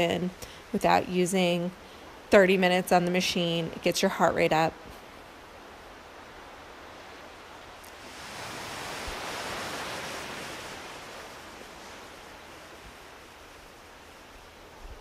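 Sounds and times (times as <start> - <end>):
small waves washing on beach: 3.4 - 15.0.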